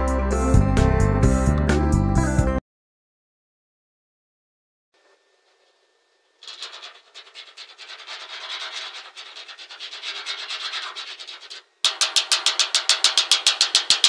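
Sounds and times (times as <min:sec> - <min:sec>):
hand scratching metal wall: 0:06.4 - 0:14.0.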